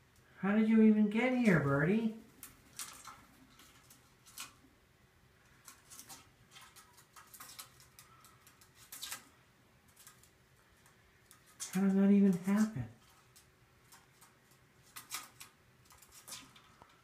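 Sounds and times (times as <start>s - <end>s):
faint clicks and scratches: 1.4s - 4.7s, 5.4s - 17.0s.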